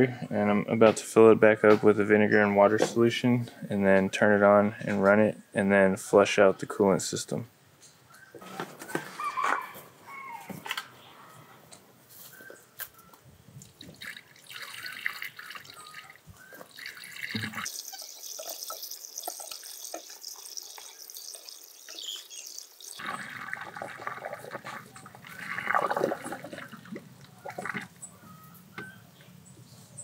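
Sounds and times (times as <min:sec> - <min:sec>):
liquid pouring through a funnel: 0:13.7 - 0:27.9.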